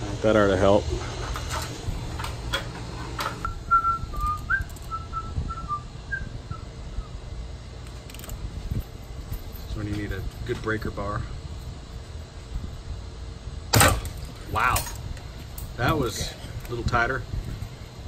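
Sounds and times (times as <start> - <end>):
low steady hum: 0.0 - 18.0
person whistling a tune: 3.4 - 7.1.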